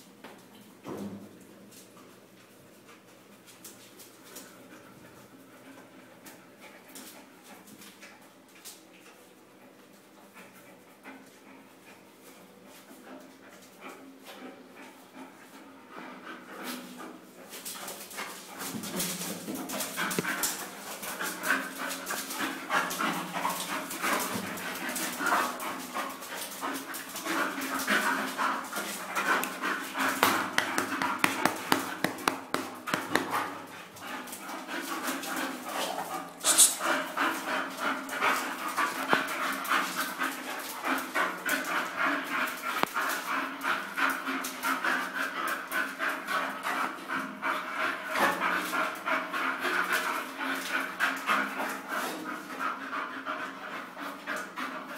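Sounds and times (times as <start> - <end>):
dogs panting fast: 10.2 - 18.7, 19.3 - 54.9
brief sharp noise: 36.4 - 36.8.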